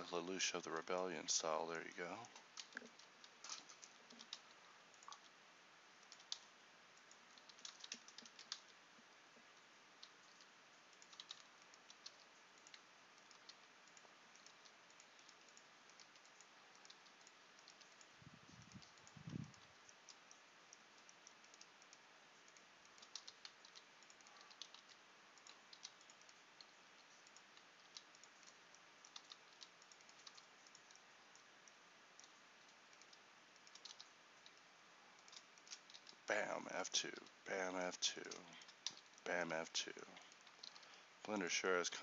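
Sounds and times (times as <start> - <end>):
computer keyboard key presses: 7.4 - 8.7, 11.0 - 20.2, 23.0 - 26.4.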